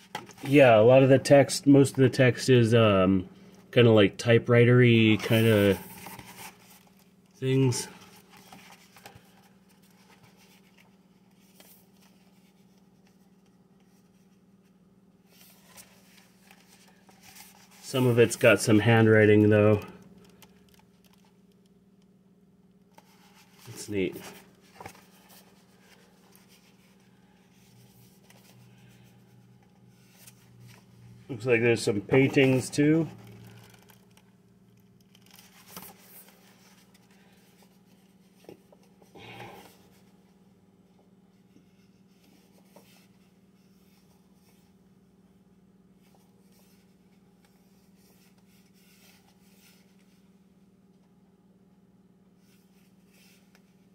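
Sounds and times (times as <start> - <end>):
low room hum: 0.0 - 53.9
book pages turning: 5.1 - 14.7, 15.3 - 21.6, 23.0 - 40.1.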